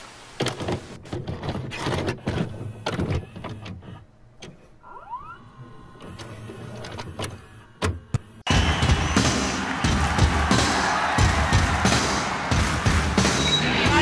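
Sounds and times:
tape mechanism clicks and clunks: 0.4 - 4.7
music: 8.5 - 14.0.

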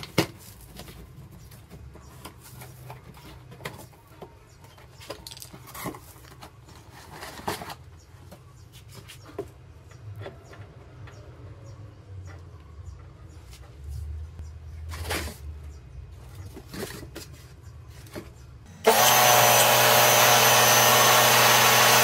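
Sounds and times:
cardboard rustling and scraping: 0.0 - 9.6, 14.8 - 18.5.

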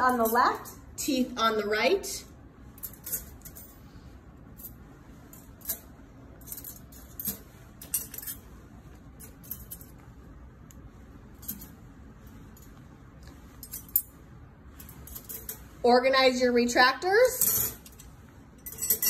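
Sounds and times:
metal instruments clinking: 2.7 - 3.9, 4.5 - 10.1, 11.3 - 15.8, 17.2 - 19.0.

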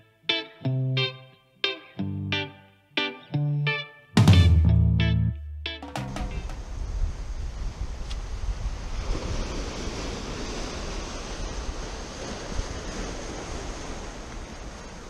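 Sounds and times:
ocean waves breaking on rocks: 6.6 - 15.0.

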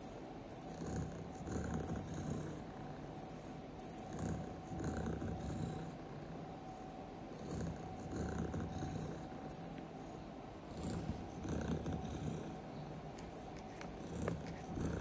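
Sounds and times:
high chirps: 0.0 - 0.8, 3.2 - 4.1, 8.9 - 9.8
cat purring: 0.0 - 15.0.

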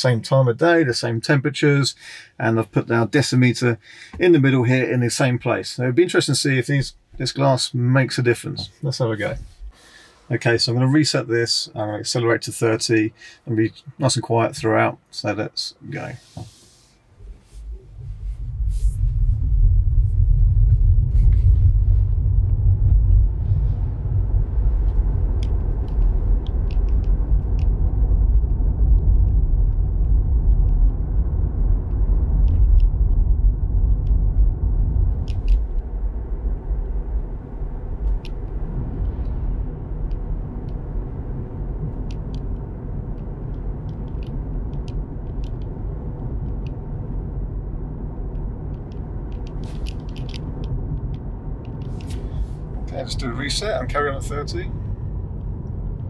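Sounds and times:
road and tyre noise in car: 11.8 - 56.0.

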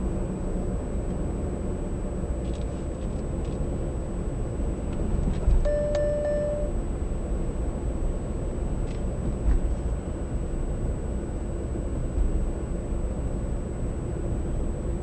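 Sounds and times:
road and engine rumble: 0.0 - 15.0
electronic beep: 5.7 - 6.8.

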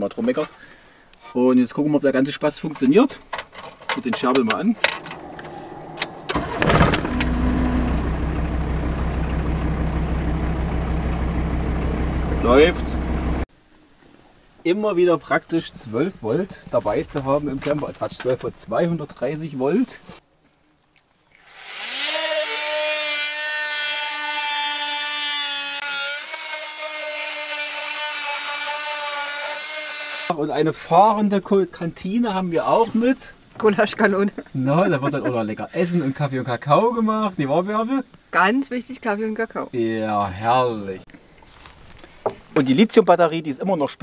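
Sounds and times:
ignition click: 4.4 - 9.5
van engine starting and idling: 4.4 - 13.5
oscillating multi-tool buzzing: 21.4 - 30.3
blade cutting chipboard: 21.5 - 30.3.

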